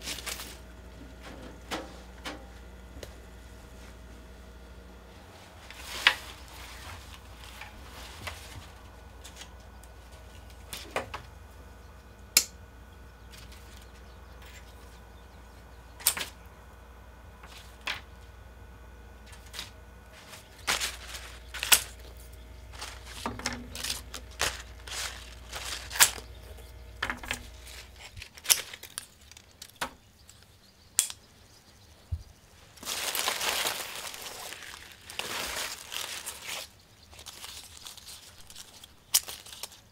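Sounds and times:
rustling: 0.0s - 2.2s, 5.0s - 11.3s, 19.2s - 29.8s, 32.5s - 39.9s
low steady hum: 0.0s - 39.9s.

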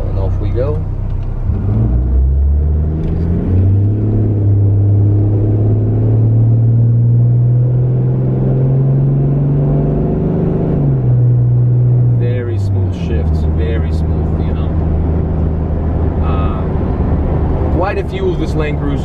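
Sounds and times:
diesel engine accelerating: 0.0s - 19.0s.

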